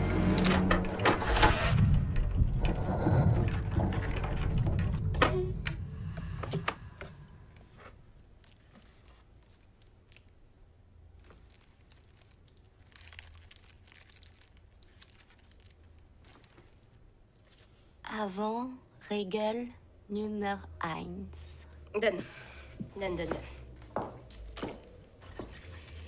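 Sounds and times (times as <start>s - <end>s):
foil candy wrapper crinkling: 11.0s - 17.1s.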